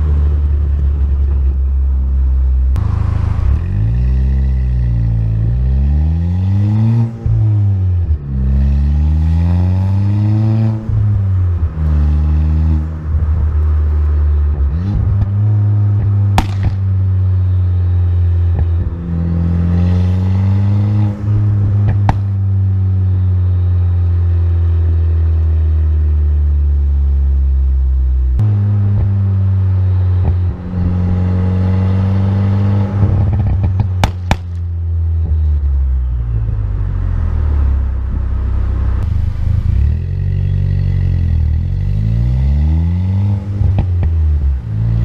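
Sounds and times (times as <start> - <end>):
car engine revving: 0.0 - 45.0
sharp exhaust pops: 16.0 - 17.0, 21.6 - 22.4, 33.0 - 35.4, 43.6 - 44.4.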